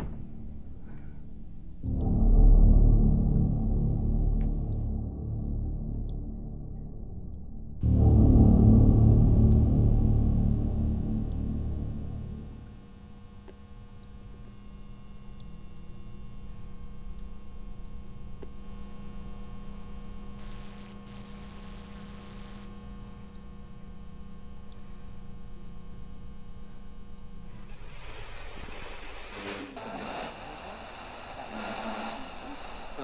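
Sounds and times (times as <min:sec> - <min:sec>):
electrical mains hum: 0:07.3 - 0:33.0
burst of hiss: 0:27.5 - 0:33.0.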